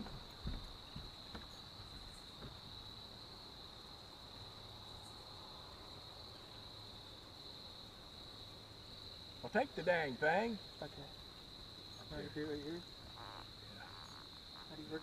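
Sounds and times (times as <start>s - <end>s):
soft knocks: 0.0s - 1.6s
crickets trilling: 0.0s - 15.0s.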